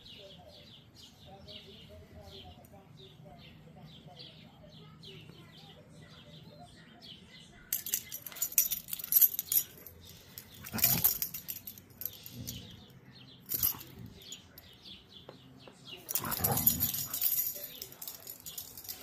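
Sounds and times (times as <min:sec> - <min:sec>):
dogs growling playfully: 0:16.1 - 0:17.5
dogs scuffling: 0:16.1 - 0:19.0.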